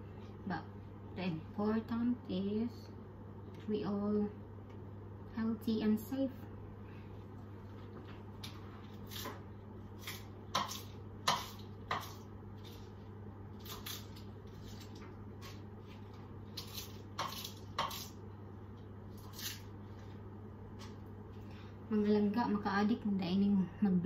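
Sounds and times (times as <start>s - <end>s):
steady low hum: 0.0s - 24.0s
knife cutting cabbage on board: 8.4s - 13.0s, 13.6s - 18.2s, 19.1s - 20.1s.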